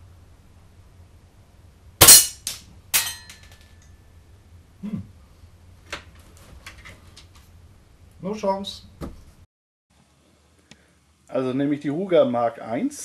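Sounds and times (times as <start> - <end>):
pellets clinking off steel target: 2.0 - 3.8.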